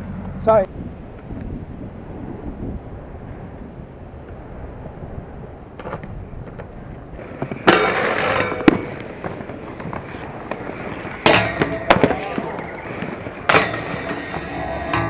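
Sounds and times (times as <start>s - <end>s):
skateboard wheels rolling on pavement: 0.0s - 15.0s
skateboard scraping: 5.5s - 15.0s
skateboard impact: 5.7s - 15.0s.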